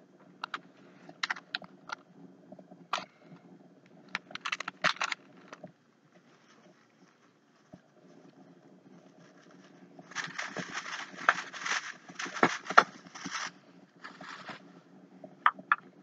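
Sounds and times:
small clicks: 0:00.4 - 0:05.8
wrapping paper crinkling: 0:09.1 - 0:14.7.

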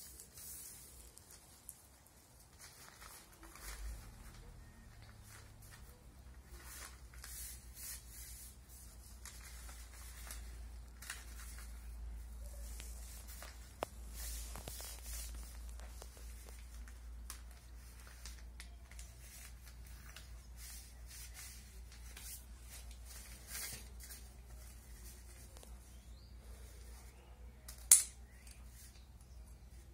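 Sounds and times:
newspaper rustling on concrete: 0:00.0 - 0:29.9.

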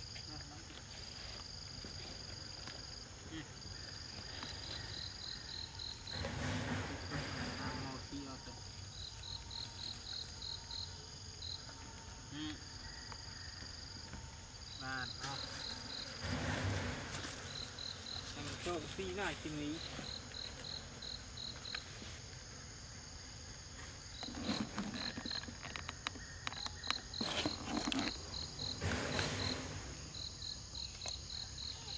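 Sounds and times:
insects buzzing: 0:00.0 - 0:31.9
rustling and crackling: 0:23.8 - 0:30.0.

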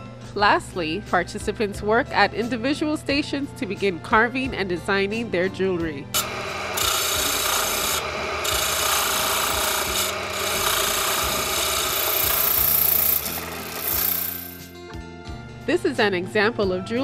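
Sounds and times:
circular saw cutting shell: 0:06.2 - 0:14.8.

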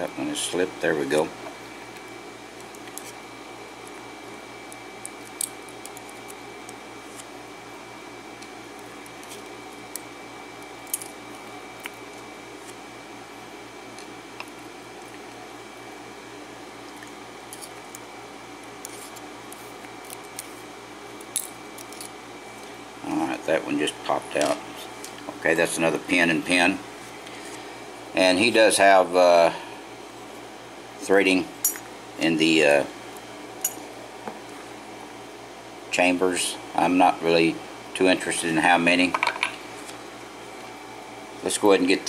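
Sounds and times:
steady background hum: 0:00.0 - 0:42.0.

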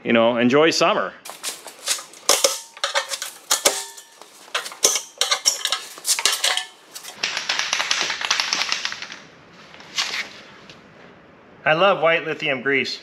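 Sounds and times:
metal clinks and clanks: 0:01.3 - 0:07.2.

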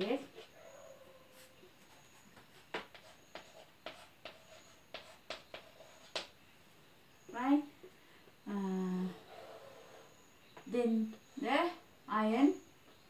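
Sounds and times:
chalk scratching on blackboard: 0:01.3 - 0:06.3.

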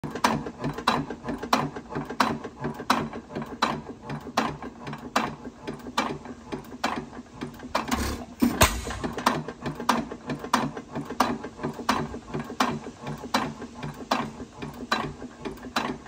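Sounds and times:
engine parts clacking: 0:00.1 - 0:16.0
engine firing stroke: 0:07.6 - 0:09.4.

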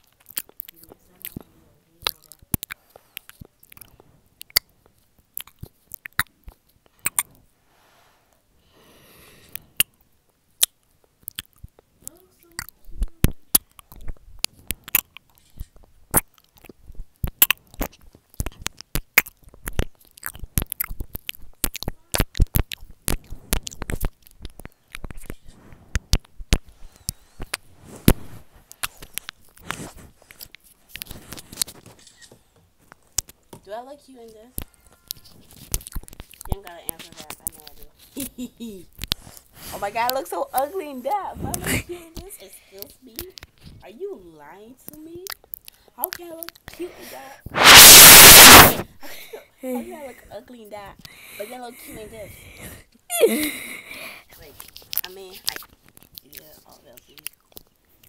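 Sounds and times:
wet mouth clicks and lip smacks: 0:00.0 - 0:07.3, 0:09.5 - 0:27.6, 0:28.7 - 0:32.3, 0:34.6 - 0:37.9, 0:44.9 - 0:46.8, 0:47.6 - 0:48.9, 0:54.5 - 0:58.0
soft breathy hiss: 0:01.0 - 0:04.4, 0:06.9 - 0:10.2, 0:23.1 - 0:32.6, 0:36.5 - 0:44.5, 0:45.6 - 0:55.6.

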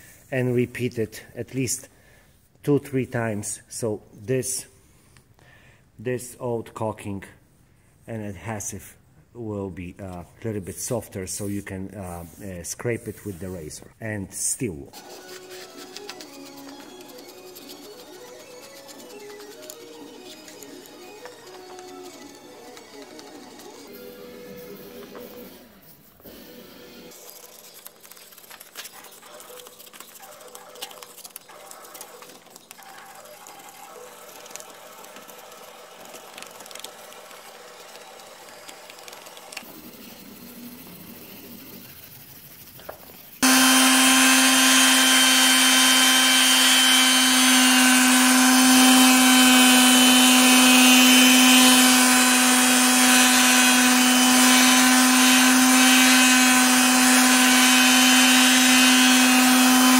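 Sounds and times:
electric sander running: 0:43.4 - 0:59.9.

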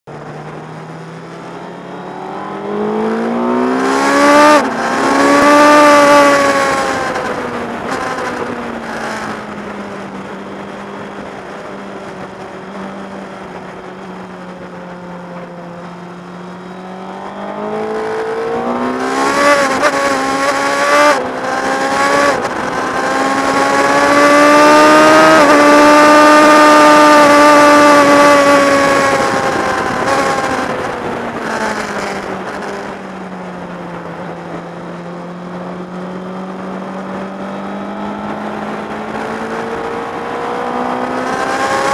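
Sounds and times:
motorcycle engine revving: 0:00.3 - 0:13.6, 0:14.7 - 0:33.3, 0:33.9 - 0:41.9
wind rushing over microphone: 0:16.6 - 0:41.9.

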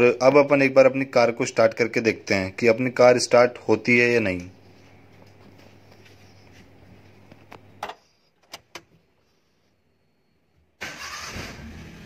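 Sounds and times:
car engine cranking and starting: 0:10.8 - 0:12.0.

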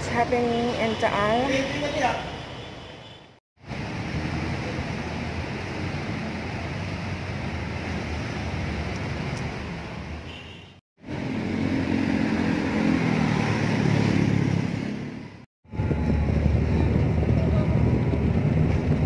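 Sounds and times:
rumble of passing vehicles: 0:00.0 - 0:19.0.

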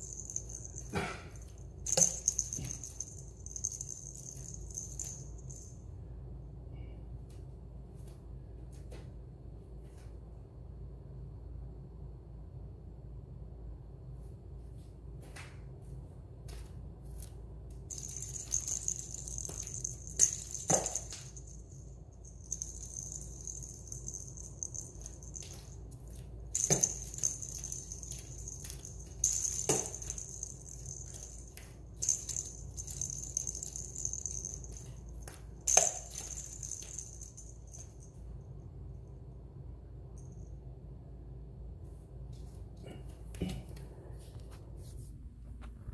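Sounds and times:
toy ball rattling on tile floor: 0:00.0 - 0:05.8, 0:17.8 - 0:38.3.

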